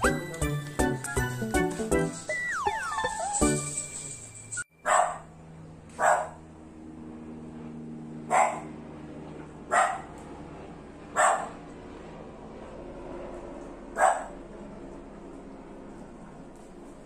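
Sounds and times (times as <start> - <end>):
puppy barking: 4.8 - 5.3, 6.0 - 6.4, 8.3 - 8.7, 9.7 - 10.1, 11.2 - 11.6, 14.0 - 14.4.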